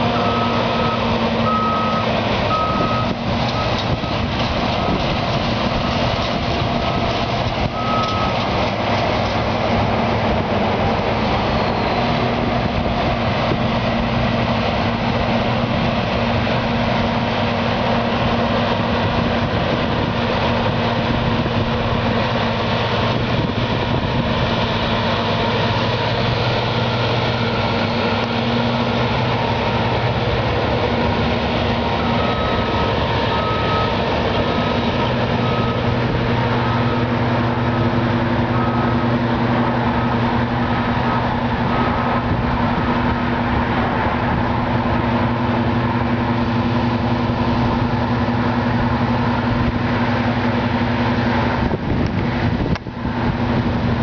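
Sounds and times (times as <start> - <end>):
combine harvester humming: 0.0 - 54.0
short high beeps: 7.8 - 8.4.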